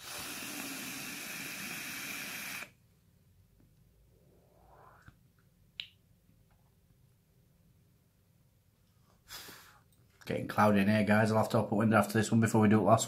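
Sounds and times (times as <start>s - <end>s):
hiss of air through atomizer: 0.0s - 2.8s
faint exhale: 9.2s - 9.9s.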